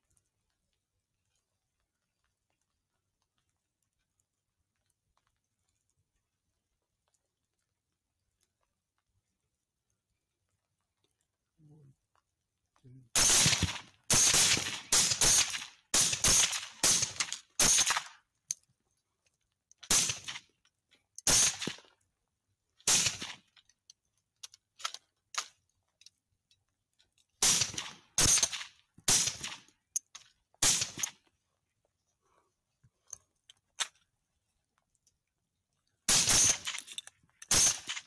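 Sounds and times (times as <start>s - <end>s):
rifle shots: 13.2s - 18.2s, 19.9s - 20.4s, 21.2s - 21.8s, 22.9s - 23.4s, 27.4s - 29.7s, 30.6s - 31.2s, 36.1s - 36.9s, 37.5s - 38.0s.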